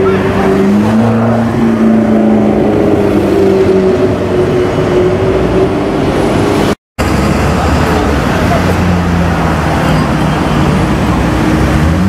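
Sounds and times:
traffic noise: 0:00.0 - 0:12.0.

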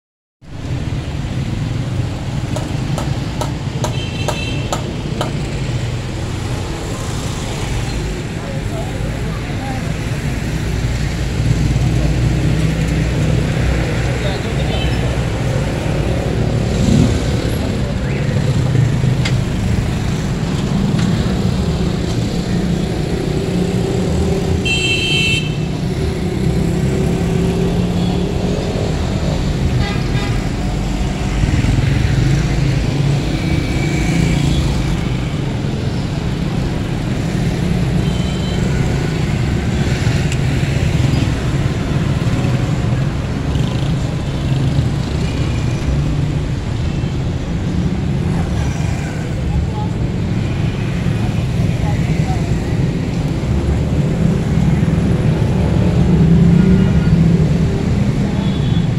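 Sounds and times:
traffic engines rumbling: 0:00.4 - 0:58.9
vehicle horn: 0:24.6 - 0:25.7.

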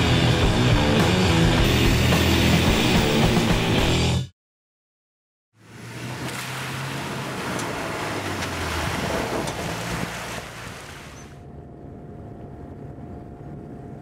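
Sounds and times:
water splashing and rushing: 0:05.6 - 0:11.4
jeep engine running: 0:05.6 - 0:14.0
low hum: 0:05.6 - 0:14.0.

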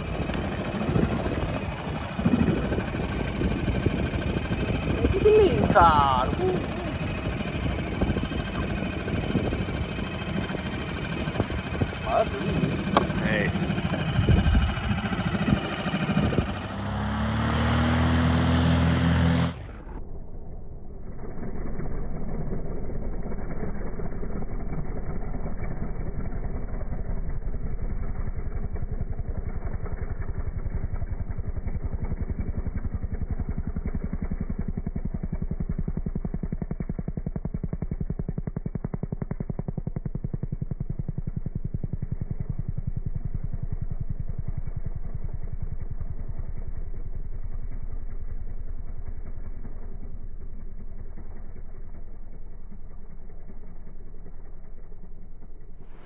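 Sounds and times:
outboard motor speeding up: 0:00.0 - 0:56.0
propeller plane flying low: 0:00.0 - 0:56.0.

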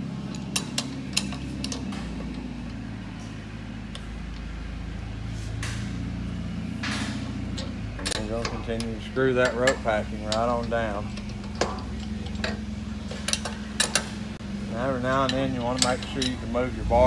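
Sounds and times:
steady low hum: 0:00.0 - 0:17.0
wrench scraping: 0:00.2 - 0:05.3, 0:06.8 - 0:17.0
wrench clicking against metal nut: 0:00.3 - 0:01.9.

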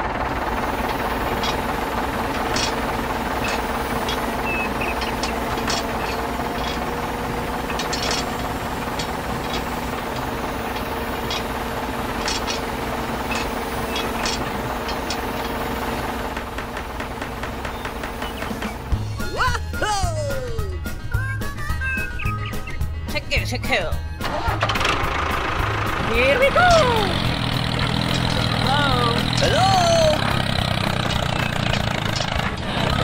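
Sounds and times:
toy crane motor whirring: 0:00.0 - 0:17.0, 0:24.9 - 0:33.0.

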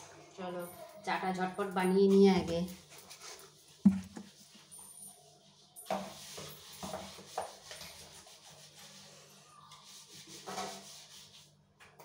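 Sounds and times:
utensils rubbing and scraping: 0:02.1 - 0:11.5.

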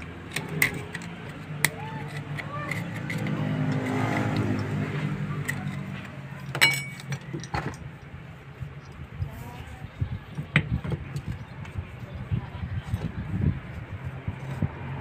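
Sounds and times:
vehicle engine hum passing: 0:00.0 - 0:10.2, 0:11.0 - 0:15.0
metallic clank of pump parts: 0:06.4 - 0:07.8.

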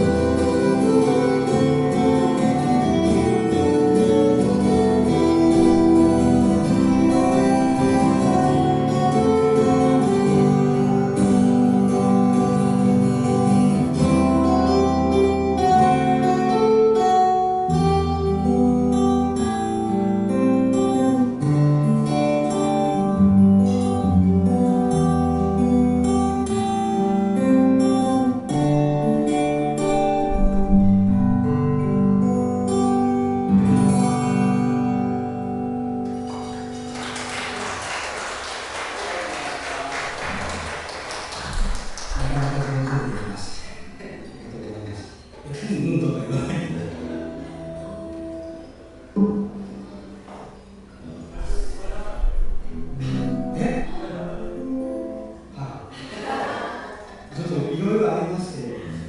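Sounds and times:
two acoustic guitars playing: 0:00.0 - 0:59.0
audience clapping: 0:36.0 - 0:43.9.

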